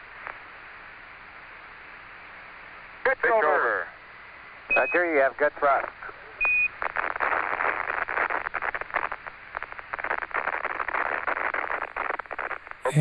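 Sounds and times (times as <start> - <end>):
radio static and hiss: 3.0 - 4.0, 4.7 - 13.0.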